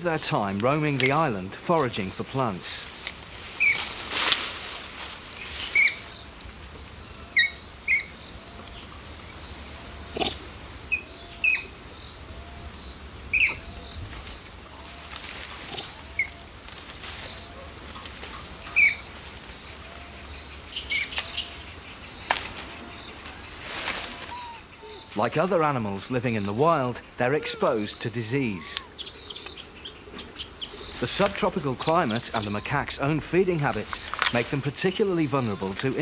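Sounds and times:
high-pitched insect drone: 0.0s - 36.0s
rustles and snaps: 2.9s - 5.9s, 16.6s - 19.6s, 22.2s - 24.5s, 33.7s - 34.6s
bird chirps: 27.2s - 35.7s.

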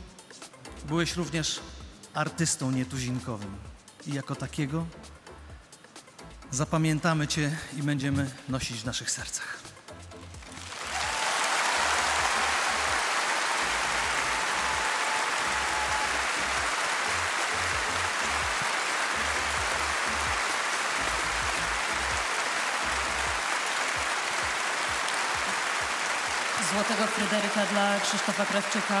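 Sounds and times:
audience applauding: 10.4s - 29.0s
music with low bass pulse: 19.2s - 20.4s, 21.0s - 22.2s.

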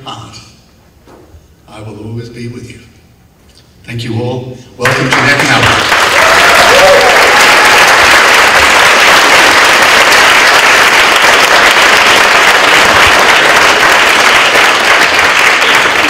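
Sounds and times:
audience applauding: 4.8s - 16.0s.

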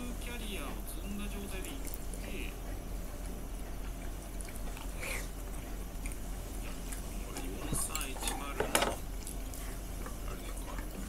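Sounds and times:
chopsticks and cutlery clicking on bowls: 7.4s - 9.0s.

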